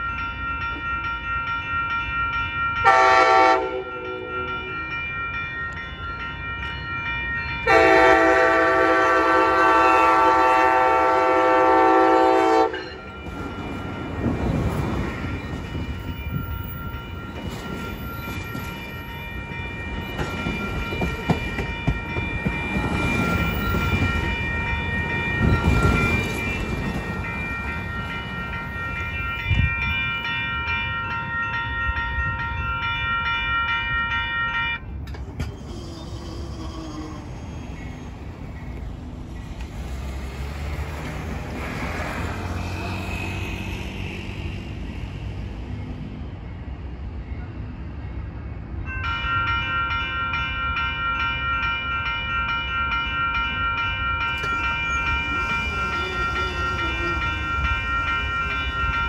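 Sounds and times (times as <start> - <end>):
crossing warning bell ringing: 0.0 - 59.0
distant diesel locomotive rumble: 2.8 - 33.4, 34.8 - 49.7, 52.1 - 59.0
train wheels clattering on rails: 6.6 - 30.3, 34.8 - 46.1, 52.5 - 59.0.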